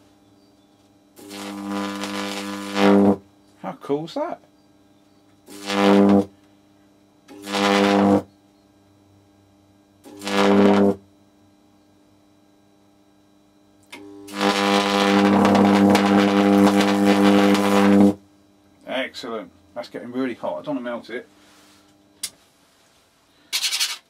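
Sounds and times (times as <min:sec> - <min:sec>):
harsh electrical buzz: 0:00.0 - 0:24.0
crackling hiss: 0:01.2 - 0:03.2, 0:05.4 - 0:06.3, 0:14.3 - 0:18.2.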